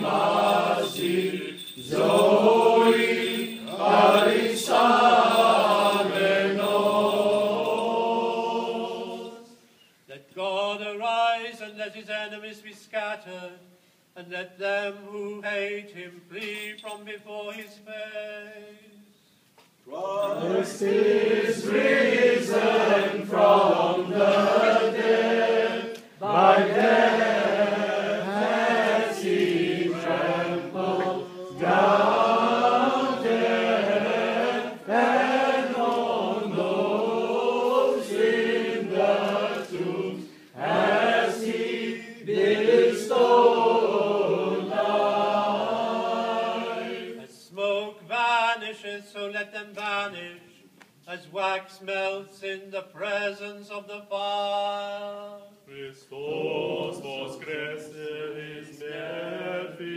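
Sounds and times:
voices singing chant: 0.0s - 9.7s, 19.9s - 47.8s, 55.7s - 59.9s.

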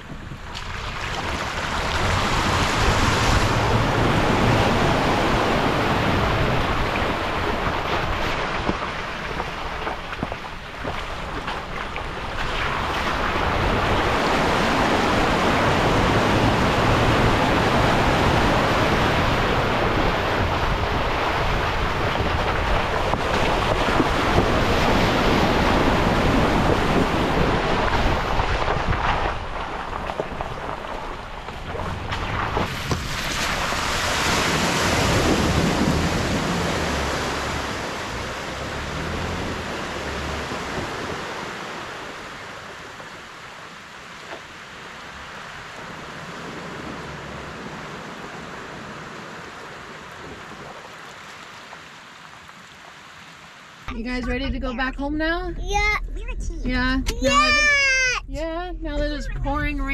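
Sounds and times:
wind on microphone: 0.0s - 8.8s, 10.0s - 42.4s
tyre splashing through mud puddles: 0.2s - 53.7s.

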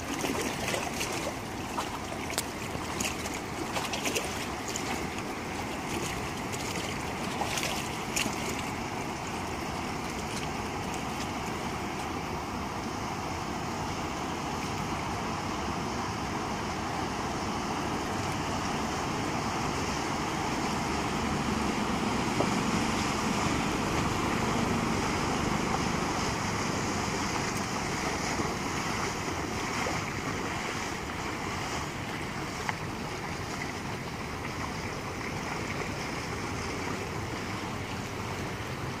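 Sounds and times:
boat engine running: 0.0s - 39.0s
water lapping: 0.0s - 39.0s.

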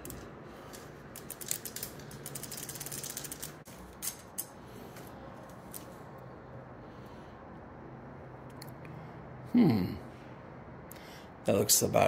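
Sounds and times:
bicycle chain clicking: 0.0s - 4.5s.

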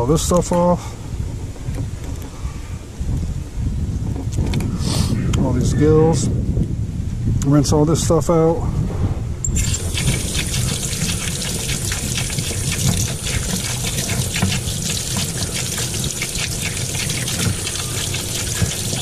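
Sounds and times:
running water from a hose: 9.5s - 19.0s
water splashing into a sink: 9.6s - 19.0s.

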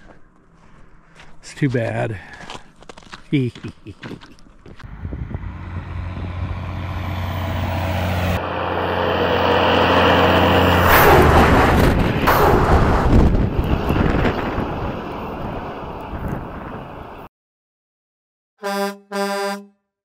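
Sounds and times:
vehicle engine running: 4.8s - 14.5s.

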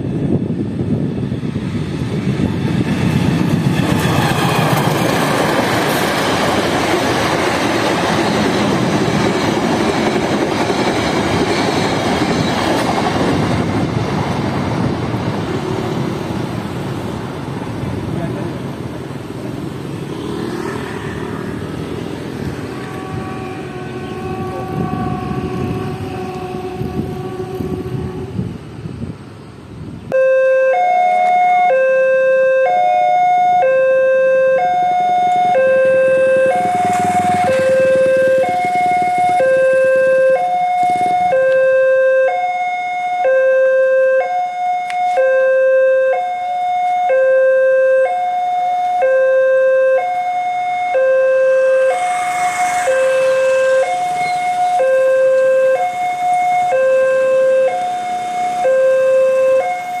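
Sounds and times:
broad rushing noise: 0.0s - 30.2s, 34.6s - 41.8s, 51.3s - 60.0s
level crossing alarm two-tone: 30.1s - 52.0s, 52.8s - 60.0s.

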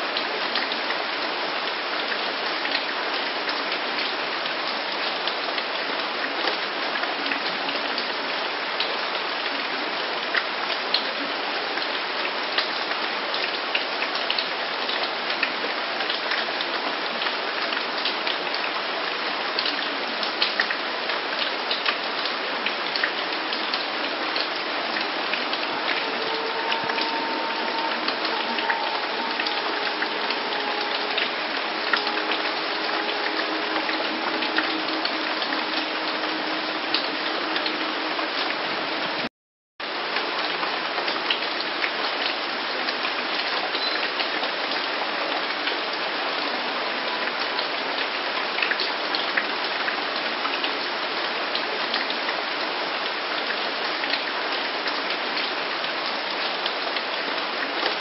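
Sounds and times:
steady rain falling: 0.0s - 58.0s
faint steady tones: 25.6s - 38.3s.

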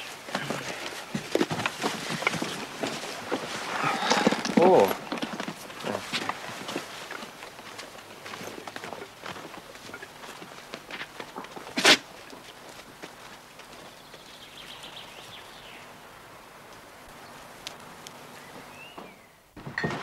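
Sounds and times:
footsteps on dirt: 0.0s - 15.8s.

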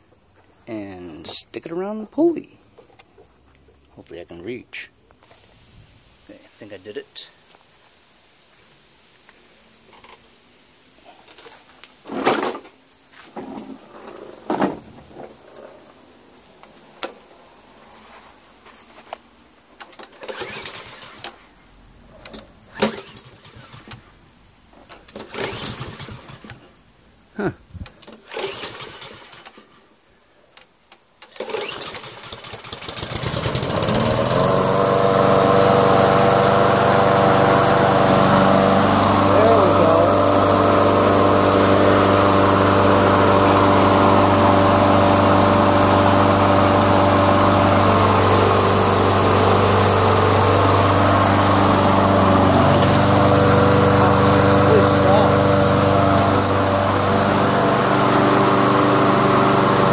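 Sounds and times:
lawn mower engine running: 20.0s - 21.4s, 22.7s - 24.1s, 25.1s - 26.6s, 28.0s - 29.7s, 31.2s - 59.9s.

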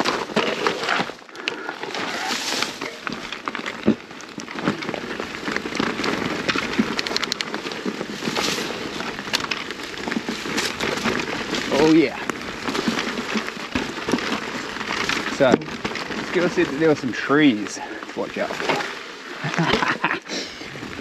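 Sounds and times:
sharp clicks and rattles: 0.0s - 20.2s
bike tyres crunching on rocks: 0.0s - 21.0s.

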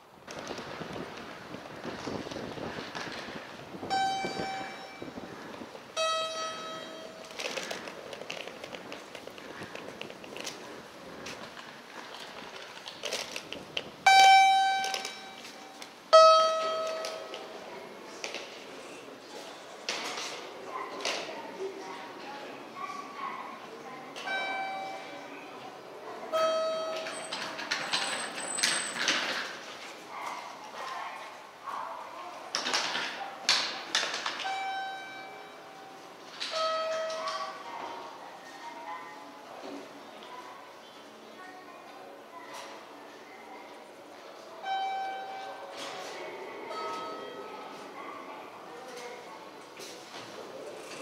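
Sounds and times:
terminal hubbub: 0.0s - 51.0s
two-note electronic chime: 3.9s - 5.2s, 6.0s - 7.3s, 14.1s - 15.5s, 16.2s - 17.3s.

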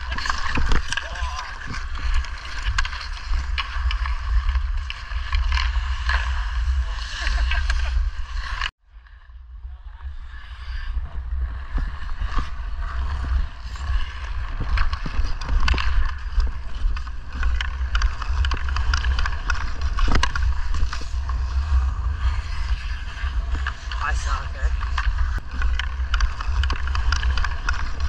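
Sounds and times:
hockey stick tapping puck: 0.0s - 6.3s, 14.2s - 21.1s, 24.7s - 28.0s
skate blades scraping ice: 0.0s - 28.0s
wind rumble on microphone: 0.0s - 28.0s.

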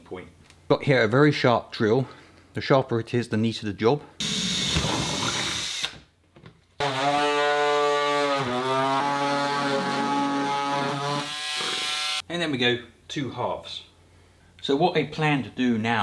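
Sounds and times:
cordless drill boring plastic: 4.2s - 6.0s
electric cutters humming: 4.2s - 6.0s, 6.8s - 12.2s.

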